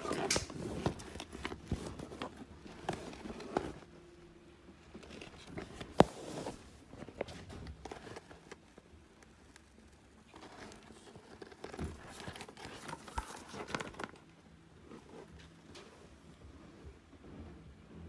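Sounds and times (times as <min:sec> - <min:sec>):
bag rustling: 0:00.0 - 0:04.0, 0:10.3 - 0:14.1.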